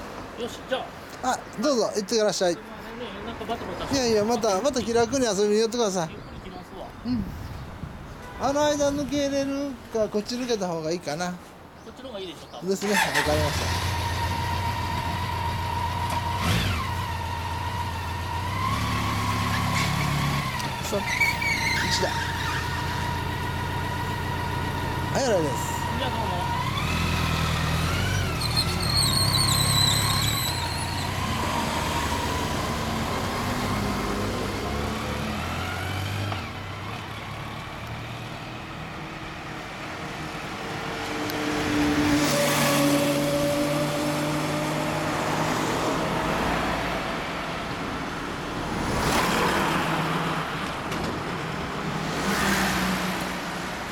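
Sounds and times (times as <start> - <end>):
cars and trucks passing: 0.0 - 53.9
motorcycle engine revving: 12.9 - 38.2
high squeal: 20.9 - 23.1, 28.0 - 32.3.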